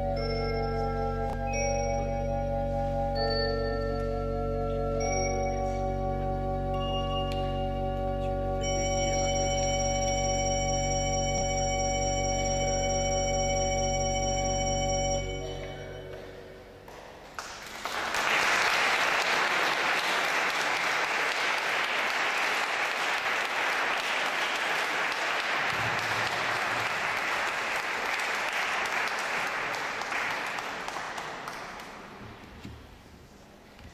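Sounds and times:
pipe organ chord reverberating: 0.0s - 16.9s
audience applauding: 16.9s - 32.2s.

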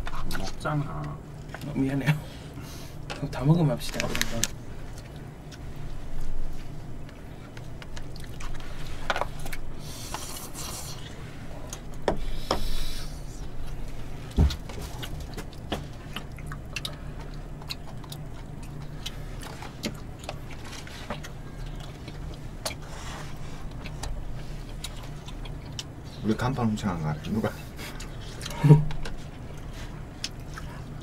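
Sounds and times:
low steady hum: 0.0s - 31.0s
dull thump: 14.4s - 14.7s.

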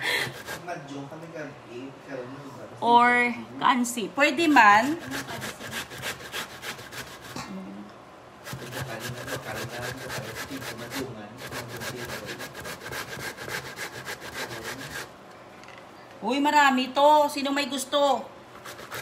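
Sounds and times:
root grated on metal grater: 8.4s - 15.1s, 18.6s - 19.0s.

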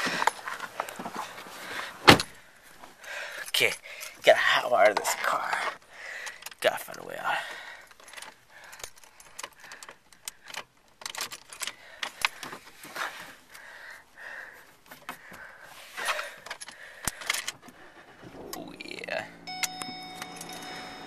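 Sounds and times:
metallic jangling and rattling: 7.8s - 12.4s, 16.4s - 21.0s.

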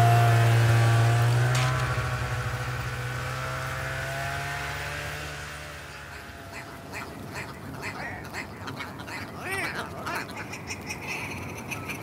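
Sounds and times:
snowmobile engine running: 0.0s - 8.2s.

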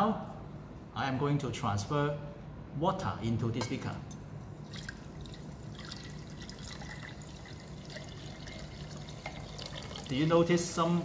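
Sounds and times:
water trickling into glass: 4.5s - 10.6s.

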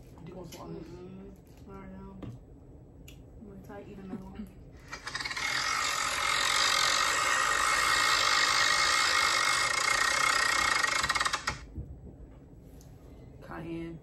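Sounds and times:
spinner wheel ticking: 4.9s - 11.6s.

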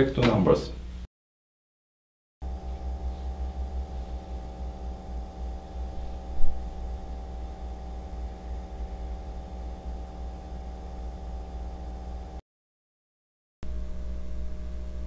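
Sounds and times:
computer cooling fan humming: 2.4s - 12.4s, 13.6s - 15.0s.

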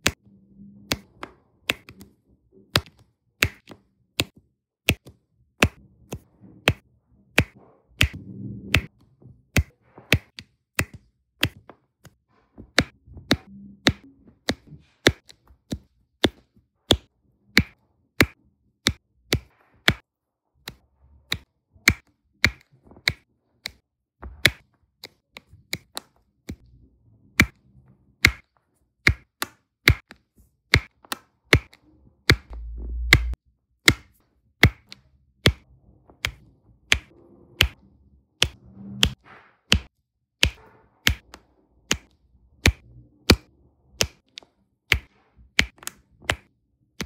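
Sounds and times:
low rumble: 8.2s - 8.8s, 32.5s - 33.4s.

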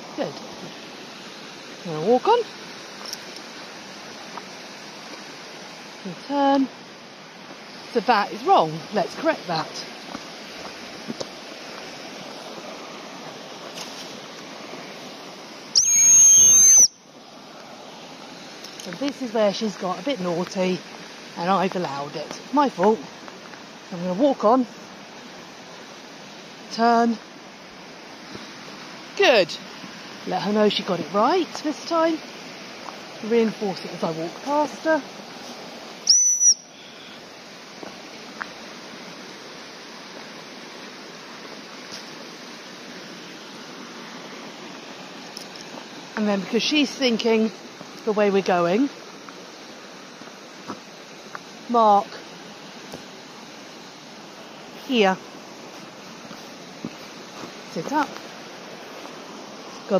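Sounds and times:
stream rushing over rocks: 0.0s - 59.9s
high-pitched whistle blast: 15.8s - 17.0s, 36.1s - 36.7s.

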